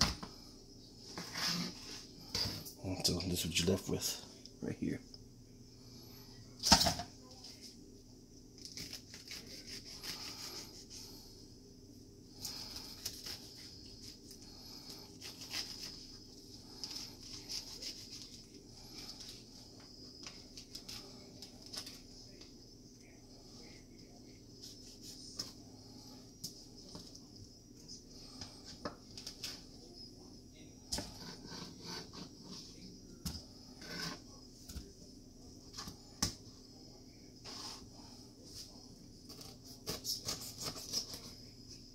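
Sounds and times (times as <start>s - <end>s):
knife slicing pineapple: 8.6s - 11.0s, 16.8s - 18.4s, 39.3s - 41.4s.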